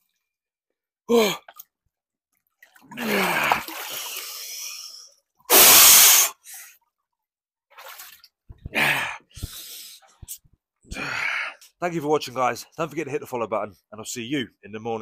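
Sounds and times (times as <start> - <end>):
water running off into tub: 2.6 - 4.4
forceful breath out: 2.9 - 6.8, 8.6 - 11.6
man gasping and breathing hard: 3.0 - 6.7, 8.6 - 11.7.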